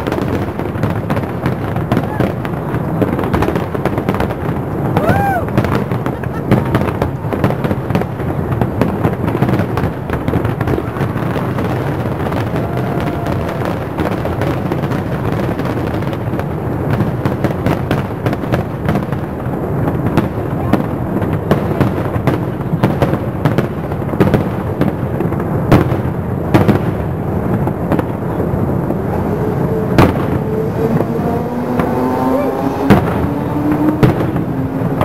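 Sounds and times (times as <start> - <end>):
fireworks bangs and crackles: 0.0 - 35.0
constant rumble: 26.8 - 35.0.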